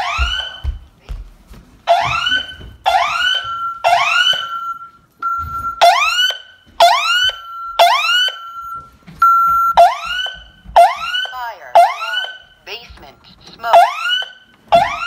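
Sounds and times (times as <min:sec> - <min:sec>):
fire alarm siren whooping: 0:00.0 - 0:00.6, 0:01.9 - 0:08.9, 0:09.5 - 0:12.5, 0:13.7 - 0:15.0.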